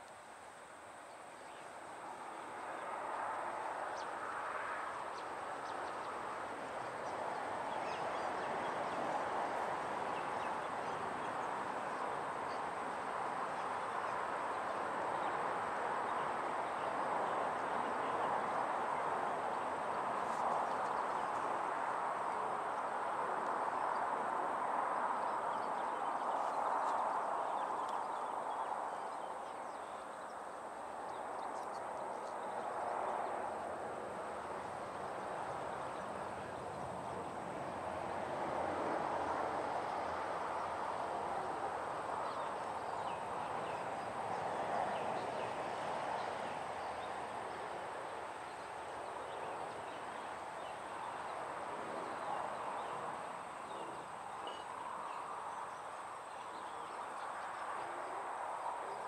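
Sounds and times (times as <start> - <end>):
outdoor background noise: 0.0 - 59.0.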